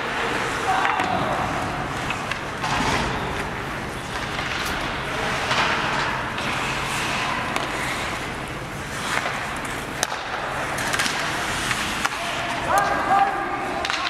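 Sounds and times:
hockey sticks and puck clacking: 0:00.0 - 0:14.0
skates scraping on ice: 0:00.0 - 0:14.0.

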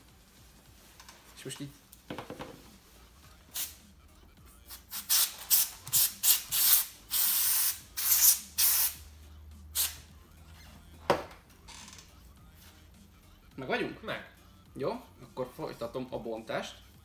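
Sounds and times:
compressed air can hissing: 0:03.5 - 0:03.8, 0:04.7 - 0:09.1, 0:09.7 - 0:10.1.

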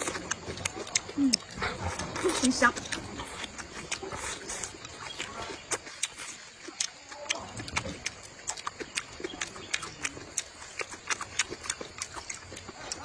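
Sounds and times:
mouth chewing noodles: 0:00.0 - 0:13.0.

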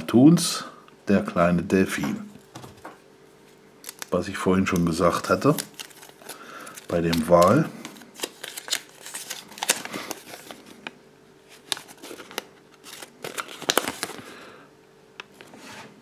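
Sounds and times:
paper crinkling and rustling: 0:03.5 - 0:14.4.

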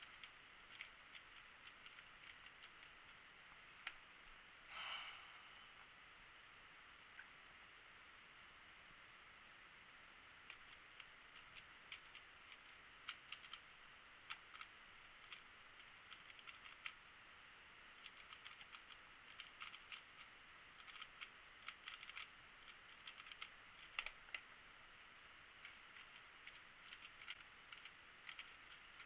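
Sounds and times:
plastic cube layers clicking: 0:00.0 - 0:04.1, 0:10.4 - 0:17.1, 0:17.9 - 0:24.6, 0:25.5 - 0:29.0.

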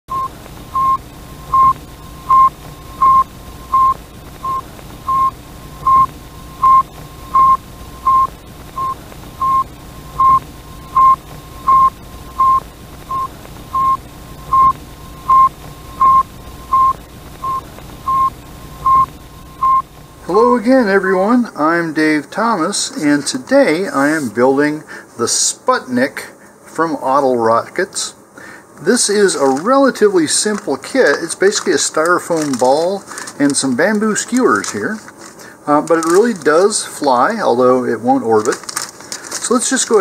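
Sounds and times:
short radio beeps: 0:00.1 - 0:19.9.

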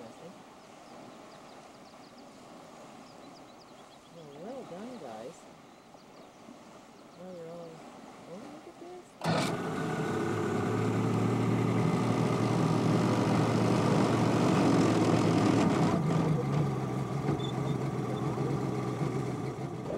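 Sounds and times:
boat motor running: 0:07.3 - 0:19.9.

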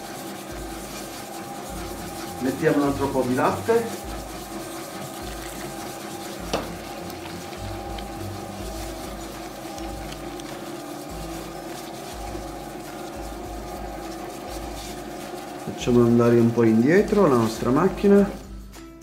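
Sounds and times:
dough mixer motor hum: 0:00.0 - 0:18.6
dough thumping in bowl: 0:05.4 - 0:10.8.

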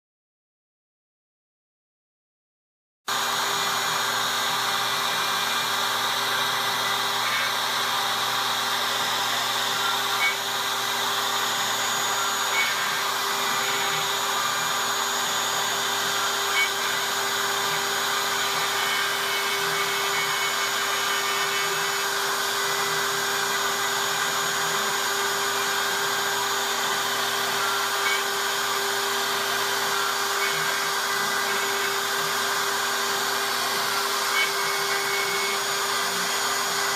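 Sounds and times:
router spindle carving: 0:03.1 - 0:36.9.

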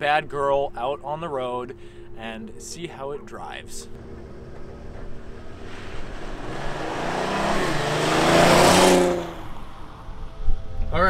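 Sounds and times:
car engine accelerating: 0:03.8 - 0:10.9.

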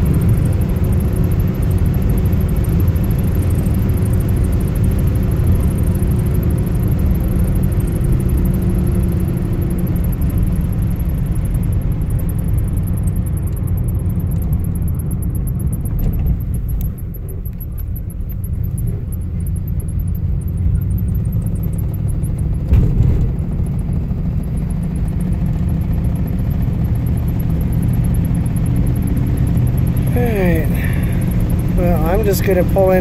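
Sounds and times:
car engine and road noise: 0:00.0 - 0:33.0
brief thump: 0:22.7 - 0:23.4.

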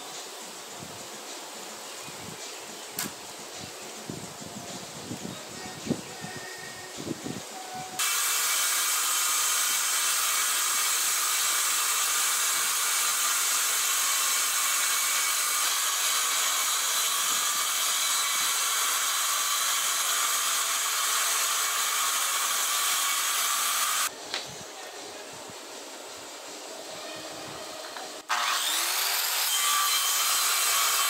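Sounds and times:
circular saw cutting wood: 0:08.0 - 0:24.1, 0:27.8 - 0:31.0.

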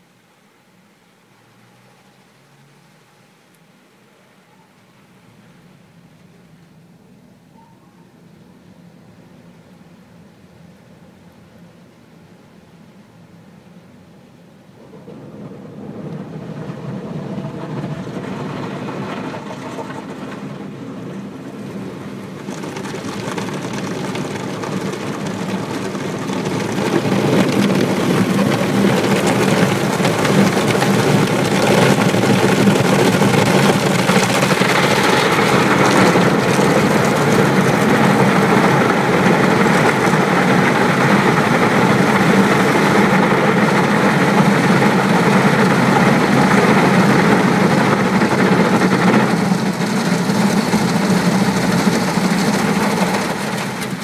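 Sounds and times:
car wash machinery whirring: 0:08.2 - 0:54.0
water spraying on car: 0:15.8 - 0:54.0.

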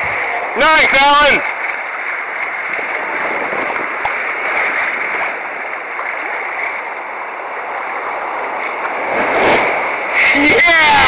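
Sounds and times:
ocean water churning and splashing: 0:00.0 - 0:11.0.

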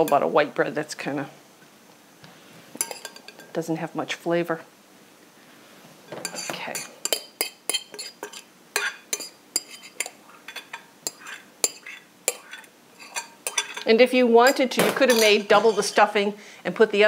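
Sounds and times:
metal utensil scraping glass bowl: 0:02.8 - 0:03.5, 0:06.1 - 0:16.2.

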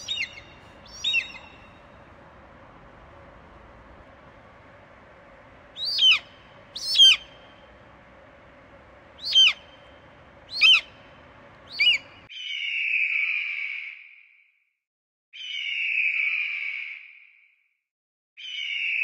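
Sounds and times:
eagle screaming: 0:00.0 - 0:12.3
steady high hiss: 0:00.0 - 0:12.3.

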